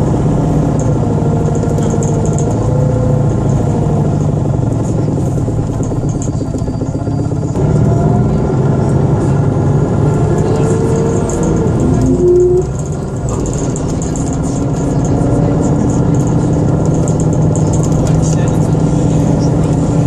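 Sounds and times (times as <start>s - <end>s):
bus engine and road hum: 0.0s - 20.0s
pitched whine gliding up: 11.4s - 13.1s.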